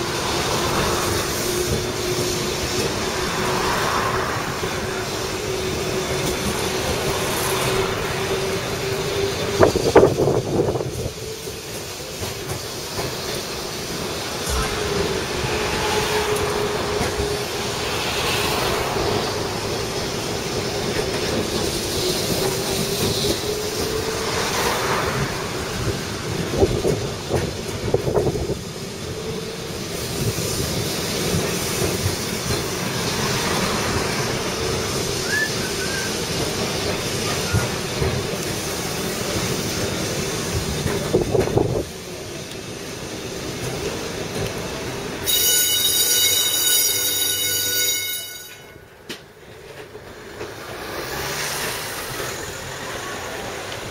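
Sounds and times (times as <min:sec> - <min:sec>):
tram wheels rumbling on rails: 0:00.0 - 0:53.9.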